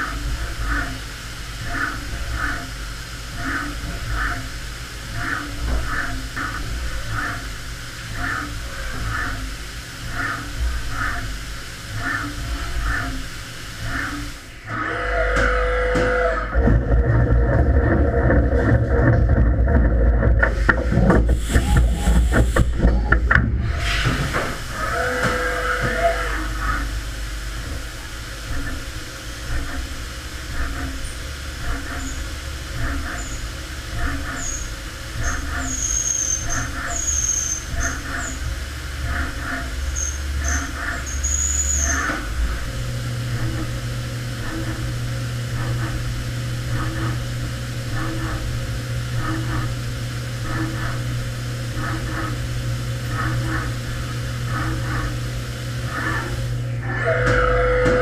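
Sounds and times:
milling machine cutting metal: 0.0s - 58.0s
steady low hum: 0.0s - 58.0s
short high squeals: 34.4s - 38.4s, 40.0s - 42.1s.

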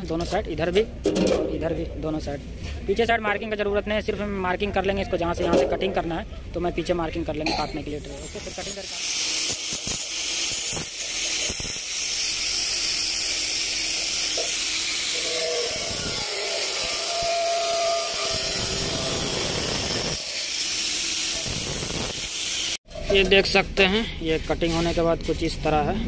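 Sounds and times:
angle grinder cutting metal: 7.9s - 22.8s
grinder whining tone: 8.0s - 22.8s.

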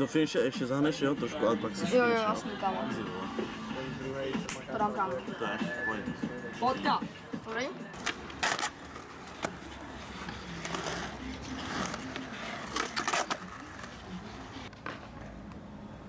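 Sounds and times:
skateboard wheels rolling on concrete: 7.3s - 16.0s
skateboard clacking on ground: 8.0s - 15.3s.

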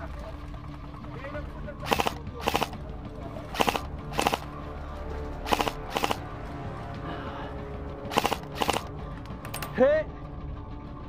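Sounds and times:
background music: 0.0s - 11.0s
airsoft rifle full-auto bursts: 1.8s - 2.8s, 3.6s - 4.5s, 5.5s - 6.2s, 8.1s - 8.9s.

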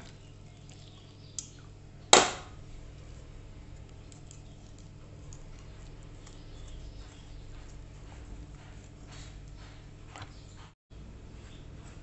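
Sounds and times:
sharp knock: 2.2s - 2.6s
chopsticks stirring in glass bowl: 2.6s - 12.0s.

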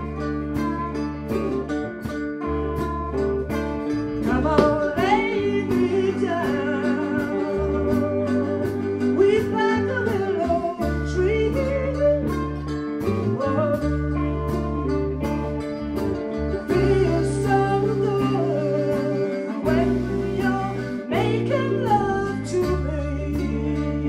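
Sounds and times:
live blues band playing: 0.0s - 24.0s
woman singing: 4.1s - 15.6s, 16.5s - 24.0s.

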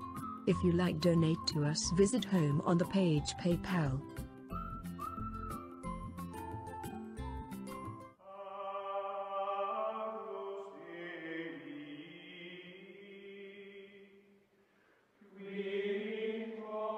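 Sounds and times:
slow choral chanting: 8.2s - 14.4s, 15.2s - 16.9s.

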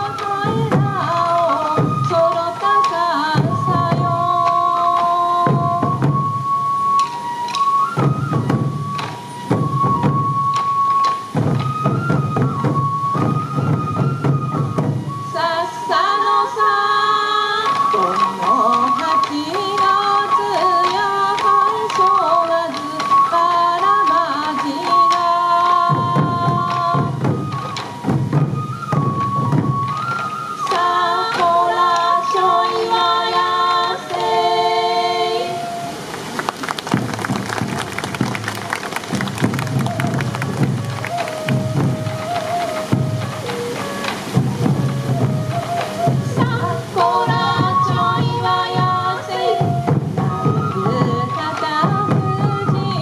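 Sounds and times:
taiko drums beating: 0.0s - 15.3s, 17.6s - 31.5s, 36.3s - 53.0s
high flute melody: 0.0s - 53.0s
voices singing: 30.6s - 36.7s, 43.5s - 53.0s.

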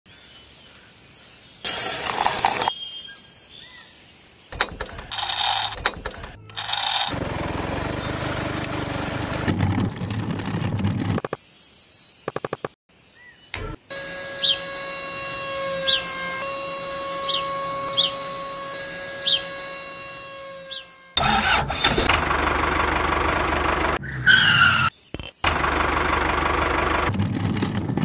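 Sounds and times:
small motor running: 4.6s - 9.7s, 13.9s - 24.0s
bursts of mechanical noise: 4.6s - 11.3s, 13.6s - 24.0s.

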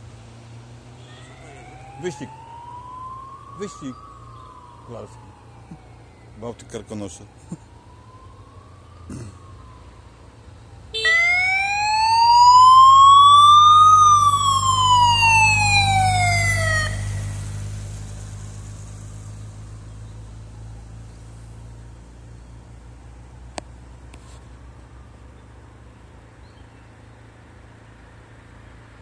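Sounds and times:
motorcycle siren wailing: 0.9s - 18.5s
motorcycle engine passing: 11.8s - 22.0s.

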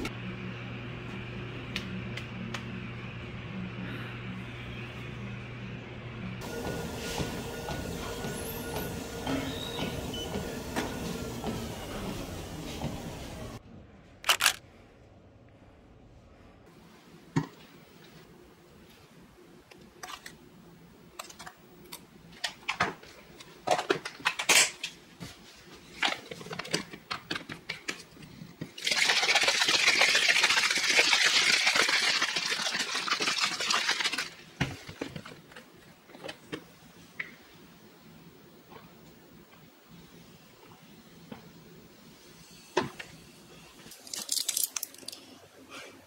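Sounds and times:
shaker bottle sloshing rattle: 28.7s - 35.4s, 43.9s - 45.3s.

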